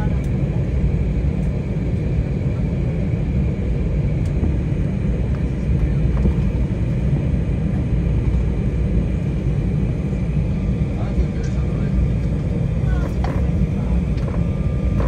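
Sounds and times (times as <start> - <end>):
airliner cabin rumble: 0.0 - 15.0
jet engine high whine: 0.0 - 15.0.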